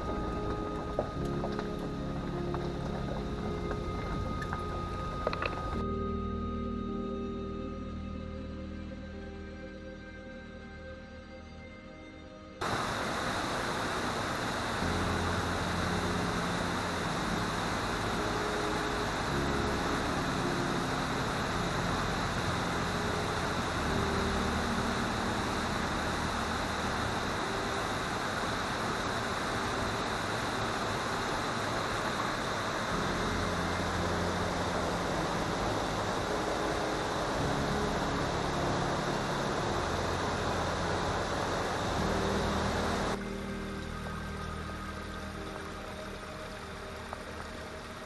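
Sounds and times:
vehicle road noise: 0.0s - 5.8s, 12.6s - 43.4s
low engine hum: 0.0s - 6.0s, 12.6s - 48.0s
background music: 0.0s - 48.0s.

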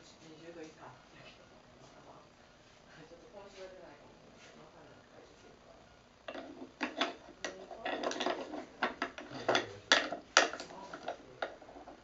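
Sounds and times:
toy utensils scraping bowl: 6.3s - 12.0s
wooden toys clacking: 6.3s - 12.0s.

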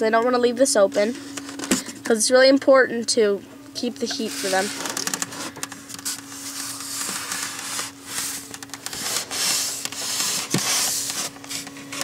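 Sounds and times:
steady low hum: 0.0s - 12.0s
cloth wiping plastic window: 4.0s - 12.0s.

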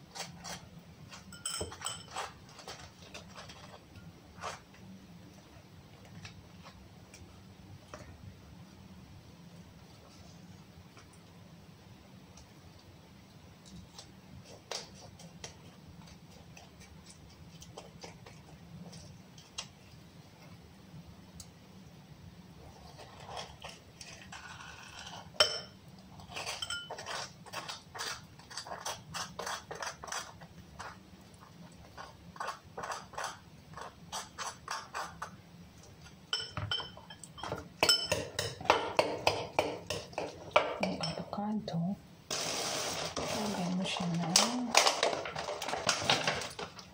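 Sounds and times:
metal utensil scraping and tapping: 0.2s - 4.6s, 23.2s - 31.0s
utensil clinking against glass bowl: 1.1s - 2.3s, 25.4s - 27.2s, 36.3s - 41.3s.

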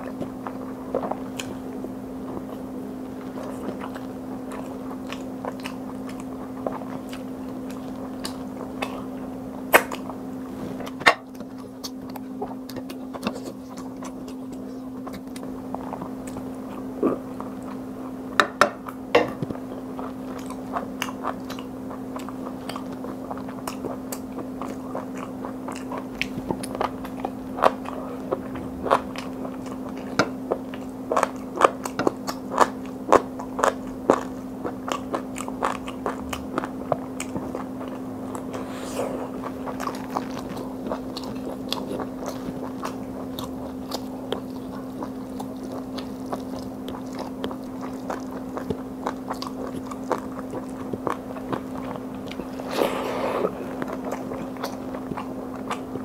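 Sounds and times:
chewing: 0.0s - 1.6s, 2.3s - 10.2s, 10.8s - 18.2s, 18.8s - 56.0s
steady low hum: 35.3s - 48.6s, 49.4s - 56.0s.

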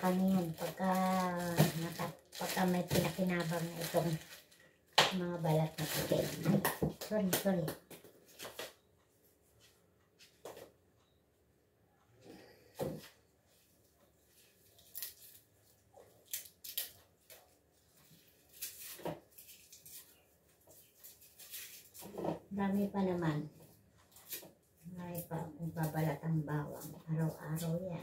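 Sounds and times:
dry garlic skins rustling: 0.0s - 6.6s, 14.4s - 22.2s.

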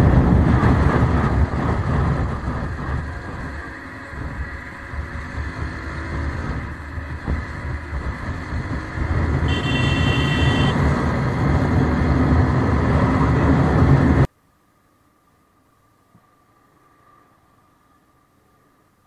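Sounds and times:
motorcycle engine accelerating: 0.0s - 14.3s
wind rush: 0.0s - 14.3s.

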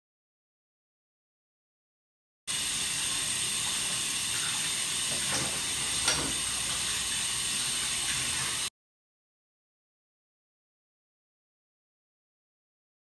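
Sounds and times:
tap water running into sink: 2.5s - 8.7s
dishes knocking: 5.1s - 6.5s.

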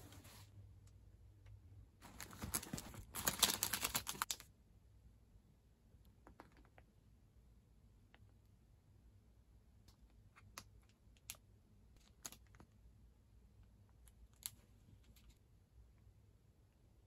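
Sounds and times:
plastic packets crinkling: 2.0s - 4.5s.

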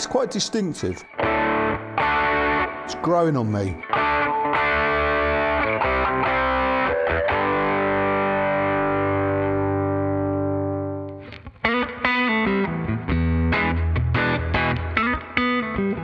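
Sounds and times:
electric guitar through an amp: 0.0s - 16.0s.

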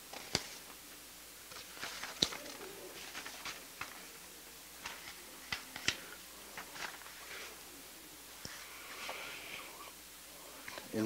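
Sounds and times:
paper pages rustling: 0.1s - 0.8s, 1.5s - 7.6s.

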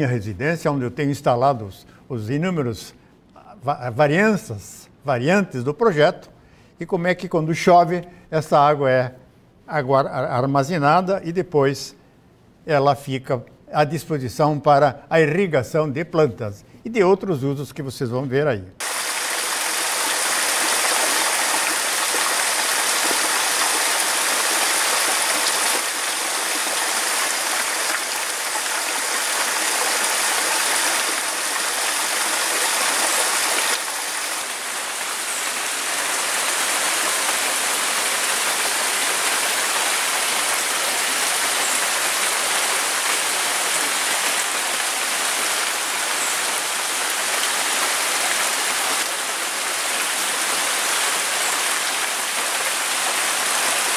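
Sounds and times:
rain falling: 18.8s - 53.9s
water pouring from downpipe: 18.8s - 53.9s.

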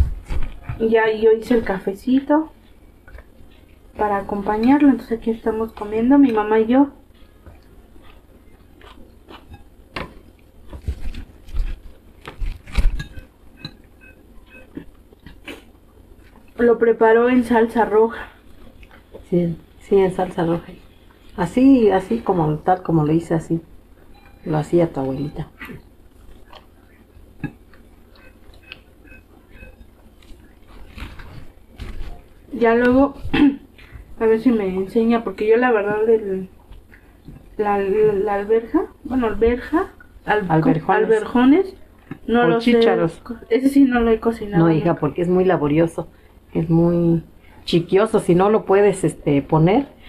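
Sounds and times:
chewing: 7.1s - 14.0s, 14.6s - 16.6s, 18.2s - 19.3s, 25.6s - 32.3s.

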